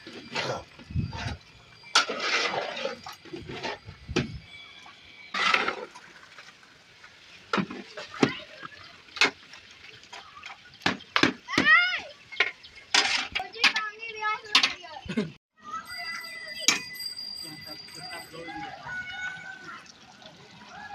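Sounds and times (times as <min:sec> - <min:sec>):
scraping sloshing strokes: 0:00.0 - 0:11.2
metal ladle stirring in a pot: 0:01.2 - 0:03.9.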